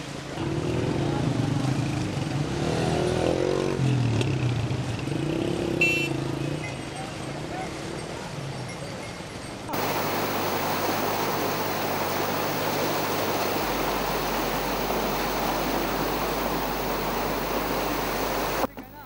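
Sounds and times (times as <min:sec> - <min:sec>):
floodwater rushing: 0:09.7 - 0:18.7.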